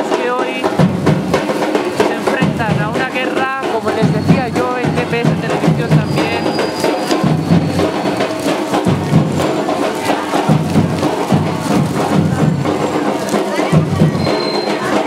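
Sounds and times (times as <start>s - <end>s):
festival music with drums: 0.0s - 15.0s.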